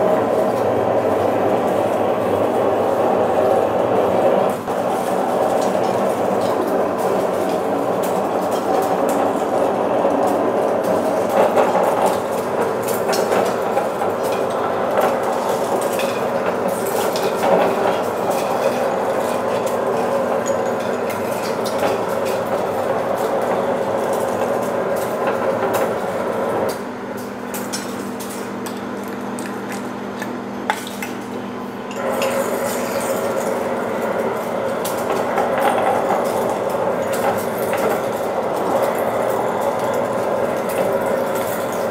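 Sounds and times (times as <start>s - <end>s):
lathe running: 0.0s - 26.7s, 31.8s - 41.9s.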